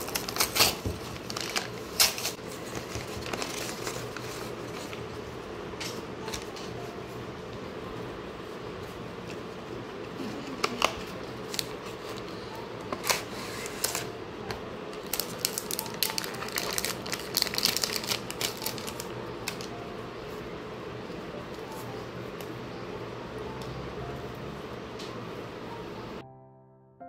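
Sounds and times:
plastic crinkling and rustling: 0.0s - 5.2s, 14.9s - 19.8s.

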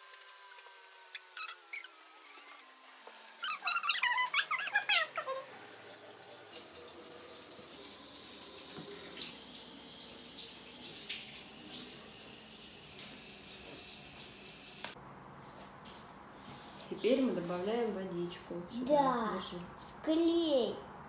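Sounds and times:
water tap running into cup: 3.8s - 15.0s.

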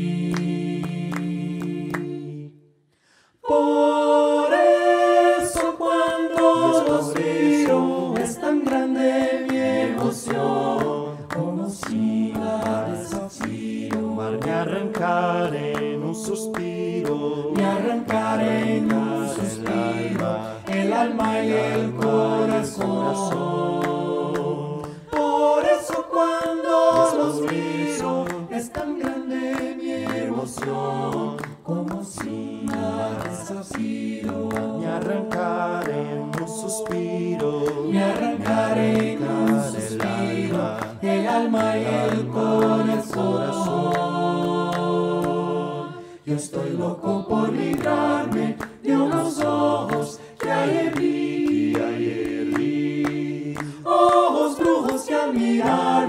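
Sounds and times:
a cappella vocal ensemble singing: 0.0s - 56.0s.

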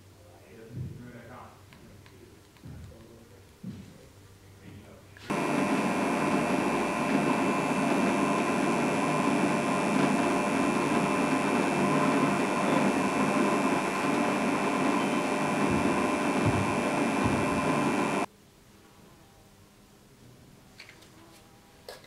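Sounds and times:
drill bit boring into leather: 5.3s - 18.3s
drill press motor running: 5.3s - 18.3s.

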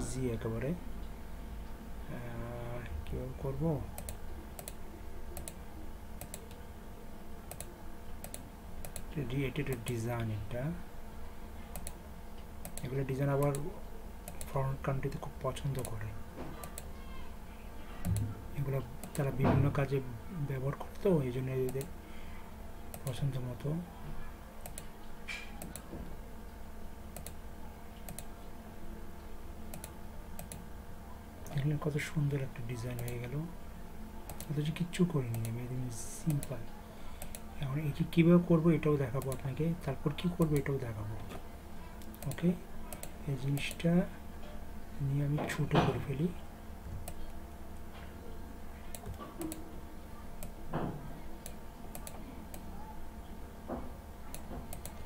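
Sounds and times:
steady low hum: 0.0s - 55.0s
computer mouse clicks: 4.0s - 4.8s, 5.4s - 5.6s, 6.2s - 6.6s, 7.5s - 9.1s, 11.7s - 12.0s, 12.6s - 13.6s, 16.7s - 16.9s, 19.0s - 19.3s, 24.6s - 25.9s, 27.1s - 27.4s, 28.0s - 28.3s, 29.7s - 30.6s, 34.3s - 34.5s, 35.3s - 35.5s, 37.2s - 37.5s, 42.0s - 43.8s, 48.9s - 49.6s, 51.4s - 52.7s, 54.3s - 55.0s.

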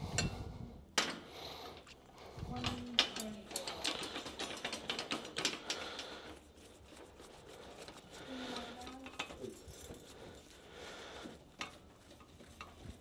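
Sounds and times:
metal bed rail clicks and rattles: 2.6s - 5.8s.

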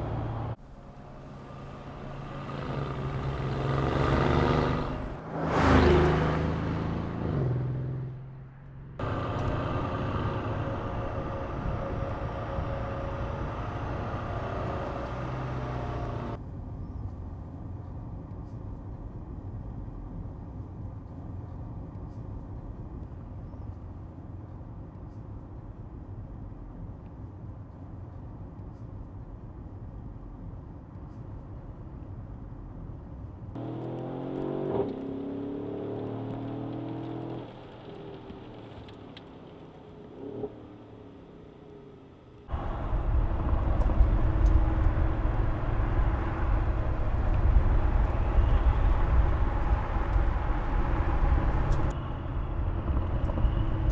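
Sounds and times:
engine and road drone in cabin: 0.0s - 53.9s.

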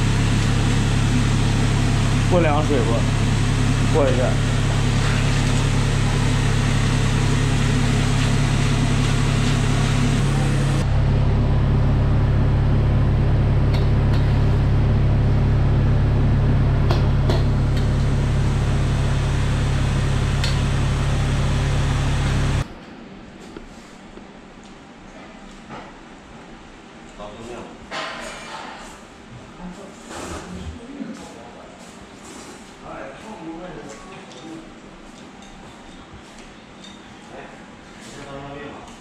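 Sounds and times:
kitchen machine humming: 0.0s - 22.8s.

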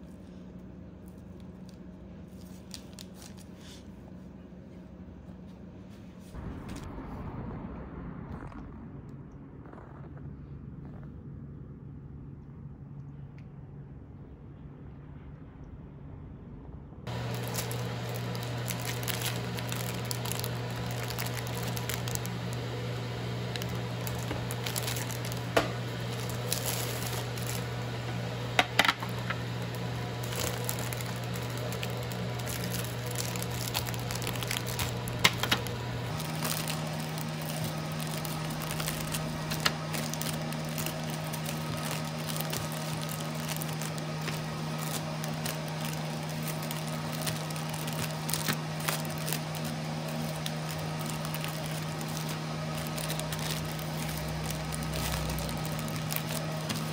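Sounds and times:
low hum: 0.0s - 56.9s
cellophane bags crinkling: 1.1s - 3.8s, 17.1s - 56.9s.

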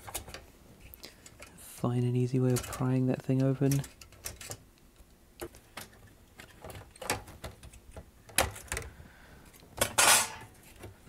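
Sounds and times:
sheet metal scraping: 10.0s - 10.6s.

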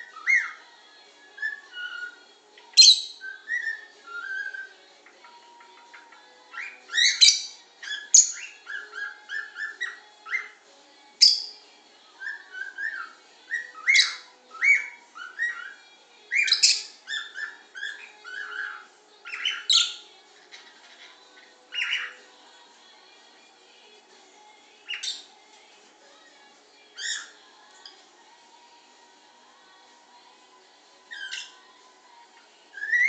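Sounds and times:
parrot whistling and chirping: 0.0s - 0.7s, 1.4s - 4.8s, 6.5s - 10.6s, 11.2s - 11.6s, 12.2s - 21.1s, 21.7s - 22.4s, 24.8s - 25.3s, 27.0s - 27.4s, 31.0s - 31.6s, 32.7s - 33.0s.

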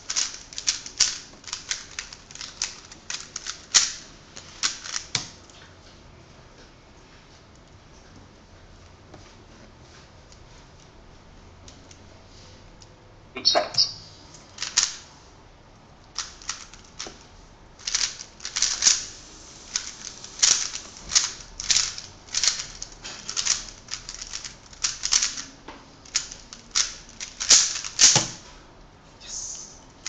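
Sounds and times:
speed cube clicking: 0.0s - 5.3s, 14.6s - 15.0s, 16.1s - 17.2s, 17.8s - 28.4s.

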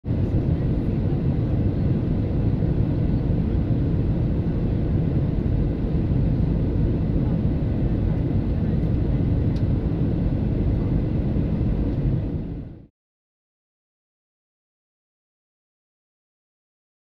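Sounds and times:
airliner cabin engine noise: 0.1s - 12.9s.

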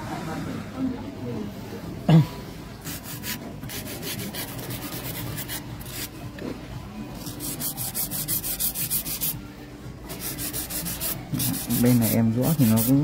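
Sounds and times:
nail file rasping: 7.2s - 9.4s.

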